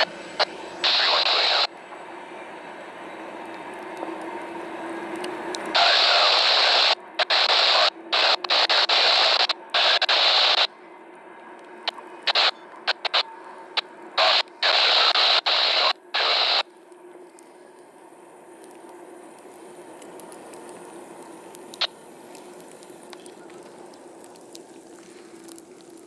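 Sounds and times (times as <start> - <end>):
scanner radio static bursts: 0.0 - 1.7, 5.7 - 10.7, 11.8 - 17.7, 18.7 - 24.6.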